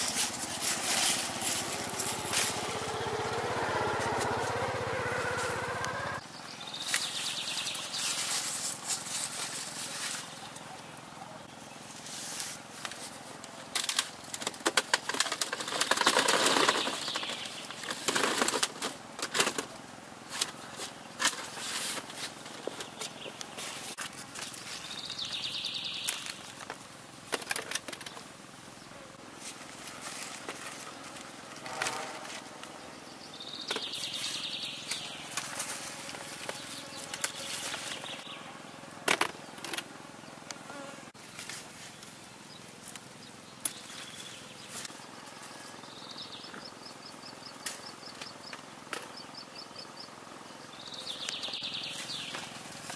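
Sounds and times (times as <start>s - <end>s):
wicker basket rustling and creaking: 0.0s - 3.2s, 8.0s - 10.6s, 29.3s - 32.6s
leaves and stems rustling: 0.0s - 5.6s, 6.8s - 10.8s, 11.8s - 19.6s, 20.2s - 28.2s, 29.2s - 32.8s, 33.7s - 38.3s, 41.2s - 45.9s, 51.8s - 52.9s
high pulsing trill: 0.0s - 6.2s.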